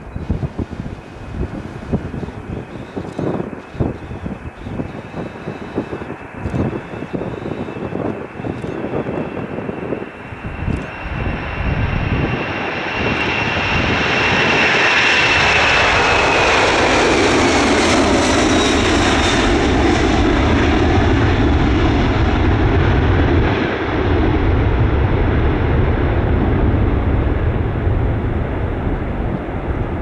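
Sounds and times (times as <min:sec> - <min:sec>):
deep jet rumble: 0:00.0 - 0:30.0
jet engine whine: 0:00.0 - 0:30.0.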